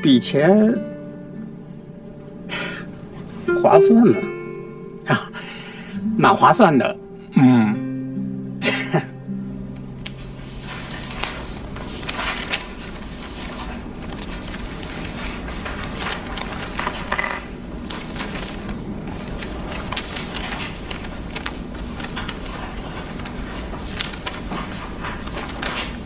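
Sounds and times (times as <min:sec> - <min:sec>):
low room hum: 0:00.0 - 0:26.0
paper rustling: 0:09.6 - 0:26.0
pages turning: 0:09.7 - 0:26.0.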